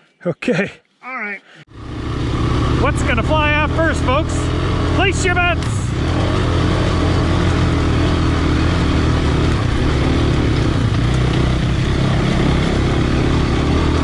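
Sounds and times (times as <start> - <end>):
motorcycle engines running: 1.7 - 14.0.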